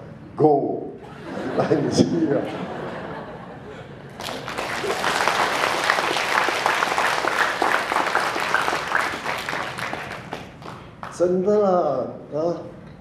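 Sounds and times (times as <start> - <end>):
audience applauding: 4.2 - 11.2.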